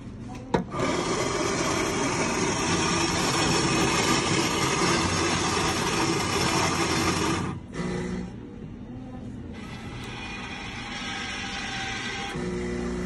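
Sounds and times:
coffee machine whirring: 0.0 - 13.0.

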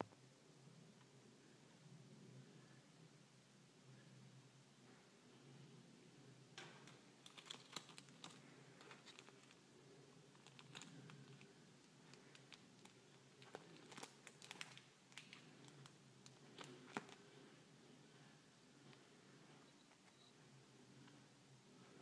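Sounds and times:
paper sticker sheet crinkling: 7.2 - 9.6, 10.3 - 11.5, 12.1 - 17.2.

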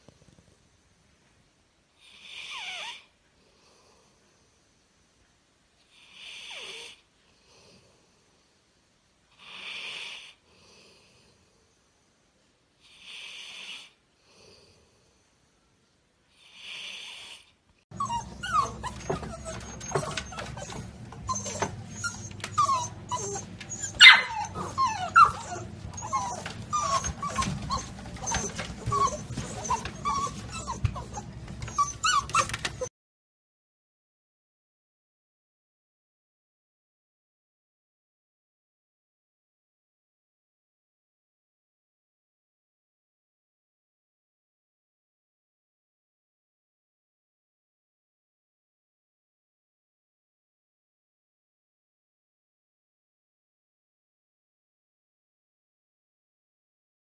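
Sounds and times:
dog snoring: 18.0 - 32.9
puppies whimpering and yipping: 18.0 - 32.9
puppy yelp: 18.0 - 32.9.

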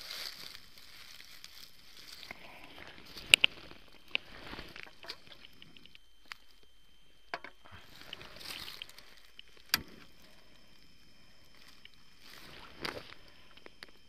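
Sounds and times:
rustling of clothing and leaves: 0.0 - 14.0
sharp clicks: 7.3 - 10.1.

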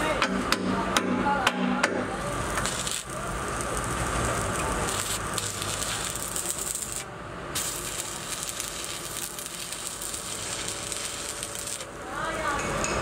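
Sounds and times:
welding arc crackling and hissing: 2.1 - 12.6.

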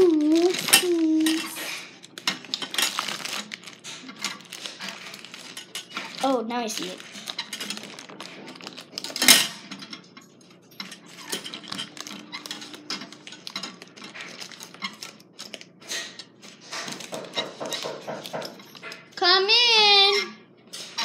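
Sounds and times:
paper shade rustling: 0.0 - 9.4.

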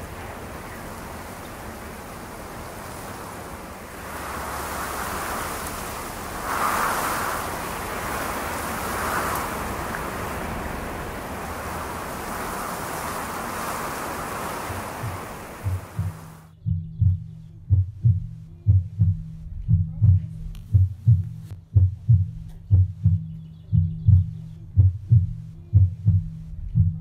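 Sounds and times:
wind blowing across microphone: 0.0 - 16.5
low thumps: 14.6 - 27.0.

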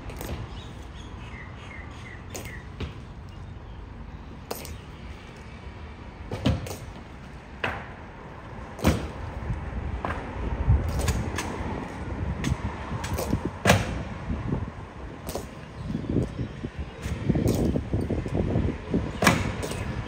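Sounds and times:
steady low rumble: 7.0 - 19.2.

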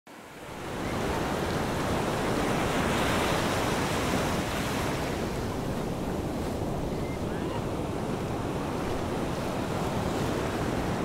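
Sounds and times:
waves breaking on beach: 0.1 - 11.0.

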